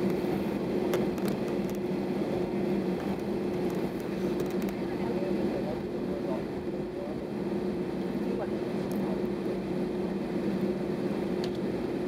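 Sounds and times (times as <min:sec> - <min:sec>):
constant low hum: 0:00.0 - 0:12.0
jet engines droning: 0:00.0 - 0:12.0.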